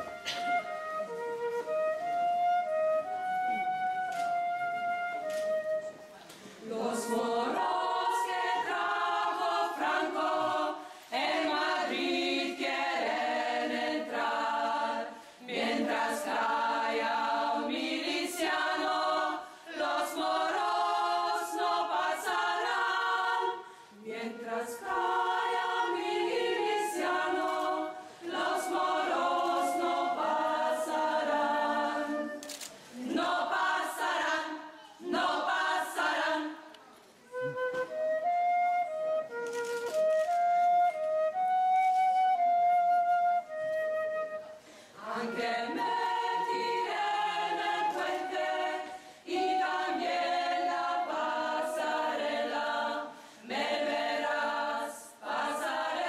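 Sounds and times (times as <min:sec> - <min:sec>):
flute holding a note: 0:00.0 - 0:06.2, 0:37.2 - 0:44.6
choir singing: 0:06.6 - 0:36.9, 0:44.9 - 0:56.0.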